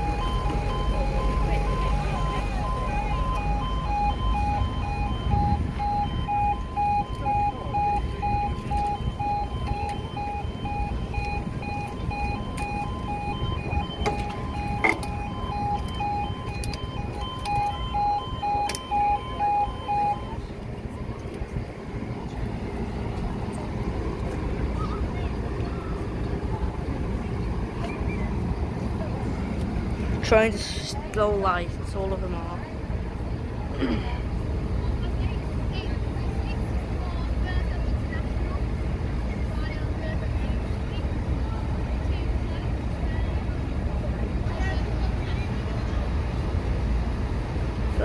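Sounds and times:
level crossing alarm beeps: 0.0 - 20.5.

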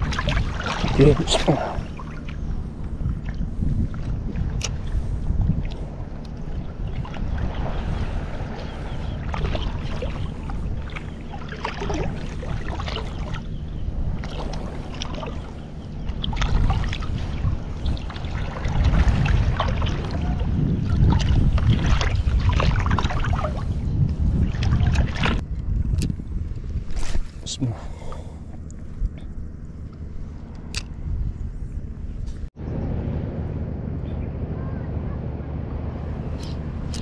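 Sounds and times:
small waves slapping: 0.0 - 25.4
wind buffeting microphone: 0.0 - 37.0.

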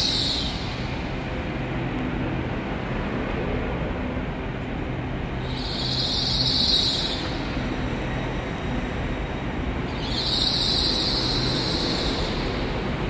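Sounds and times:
train running hum: 0.0 - 13.0
high hiss: 9.9 - 12.8.

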